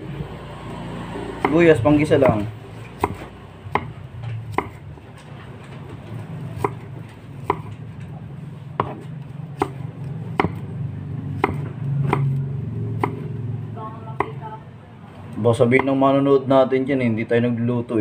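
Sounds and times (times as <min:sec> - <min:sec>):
low steady hum: 0:00.0 - 0:16.0
knife chopping on wooden block: 0:01.4 - 0:04.8, 0:06.5 - 0:07.8, 0:08.8 - 0:10.7, 0:11.4 - 0:12.4, 0:13.0 - 0:13.3.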